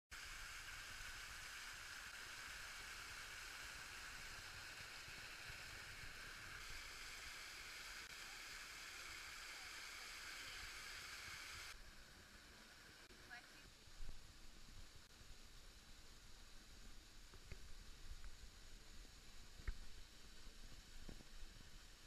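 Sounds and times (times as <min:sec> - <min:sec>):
waterfall rushing over rocks: 0:00.2 - 0:11.8.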